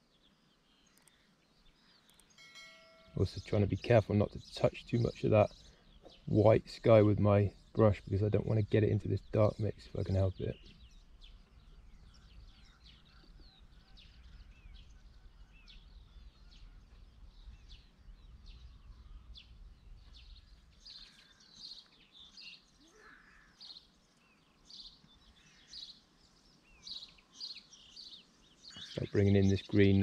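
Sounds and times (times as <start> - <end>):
birds chirping and trilling: 0.0 - 30.0.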